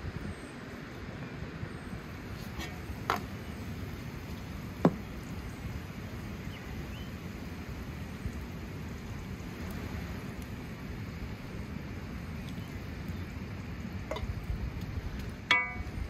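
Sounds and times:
steady hiss: 0.0 - 16.0
metal ladle knocking pan: 15.5 - 16.0.

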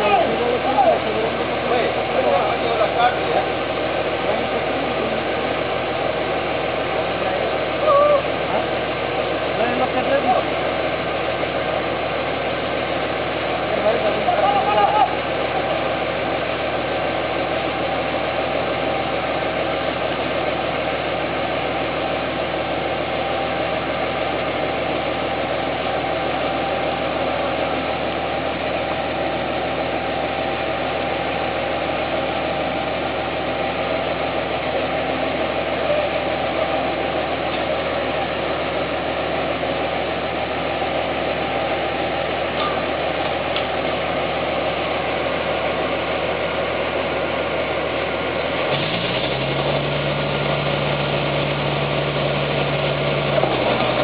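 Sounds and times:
chainsaw cutting log: 48.7 - 50.2.

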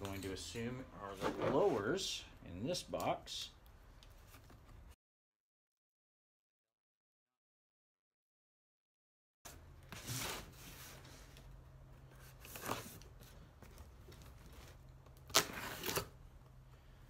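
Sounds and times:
knife slitting packing tape: 15.2 - 16.2.

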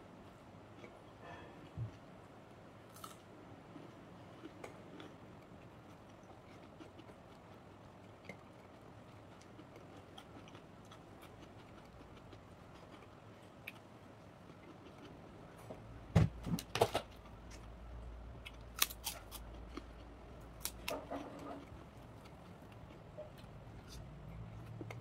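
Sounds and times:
crackers crackling and snapping: 18.4 - 24.0.

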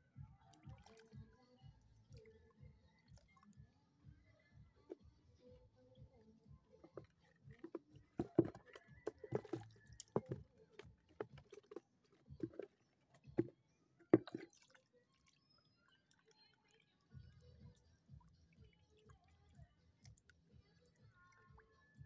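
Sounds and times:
water splashes and drips: 0.4 - 3.6, 4.2 - 22.0.

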